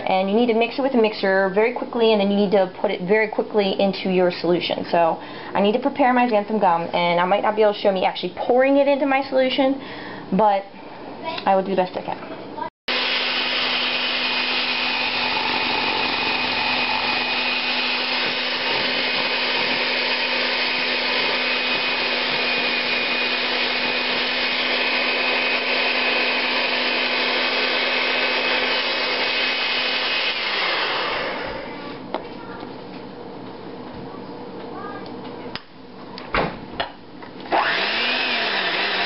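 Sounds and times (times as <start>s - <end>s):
electric mixer running: 12.9s - 32.1s, 37.5s - 39.0s
mixer motor spinning down: 12.9s - 32.1s, 37.4s - 39.0s.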